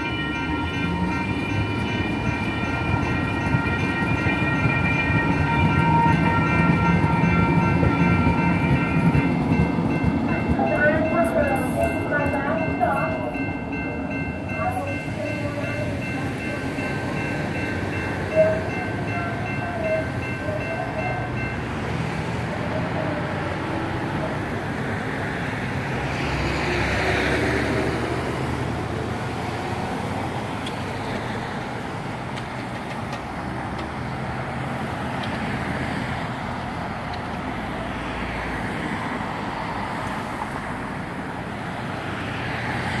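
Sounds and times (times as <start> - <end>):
electronic crossing bell ringing: 0.0 - 21.8
road traffic rumble: 0.0 - 43.0.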